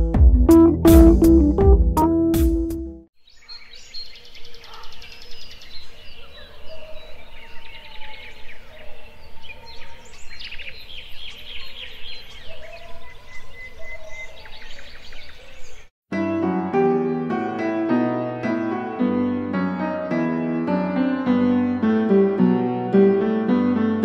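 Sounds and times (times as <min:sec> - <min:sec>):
birds chirping and trilling: 0:03.2 - 0:15.9.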